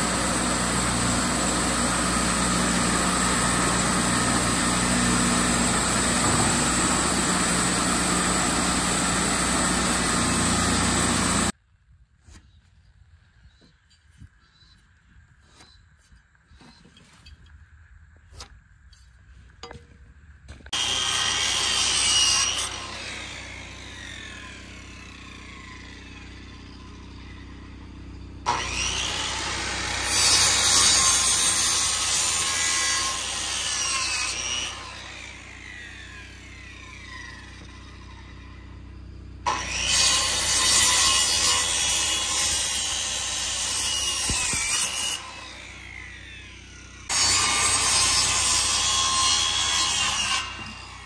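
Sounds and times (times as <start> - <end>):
circular saw cutting wood: 0.0 - 11.6, 20.7 - 51.0.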